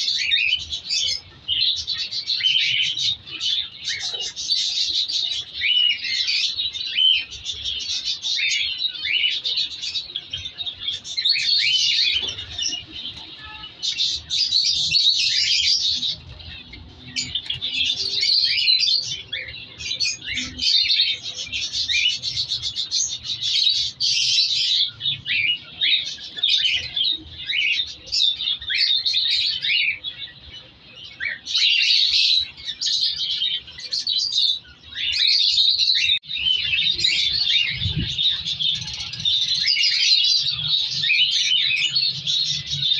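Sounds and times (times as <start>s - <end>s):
cockatiels chirping and chattering: 0.0s - 42.9s.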